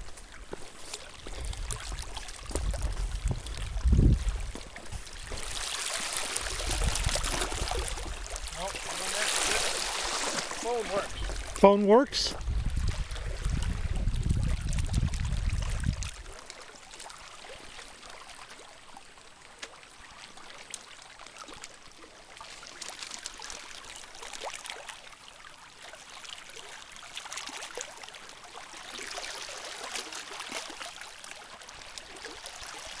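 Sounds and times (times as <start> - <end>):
small waves lapping on rock: 0.0 - 33.0
low rumble on microphone: 1.2 - 5.5, 12.4 - 16.3.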